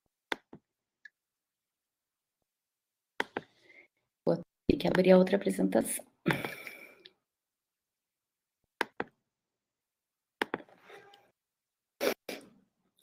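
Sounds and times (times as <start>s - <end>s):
computer mouse clicking: 8.8s - 9.2s.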